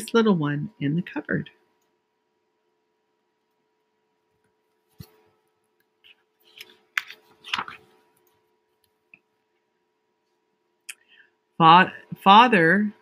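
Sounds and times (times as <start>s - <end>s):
page rustling: 4.7s - 5.4s, 6.0s - 8.3s.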